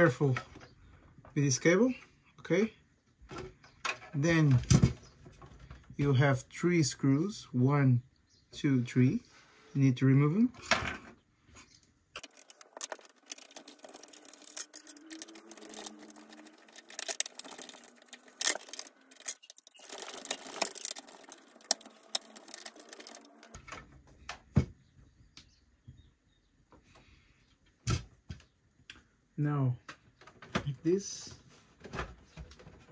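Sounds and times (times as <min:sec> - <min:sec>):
screwdriver and screws clicking: 0:12.2 - 0:23.6.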